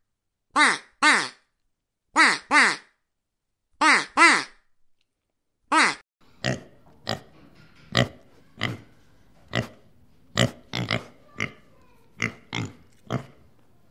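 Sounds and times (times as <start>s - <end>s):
pigs grunting: 5.8s - 13.5s.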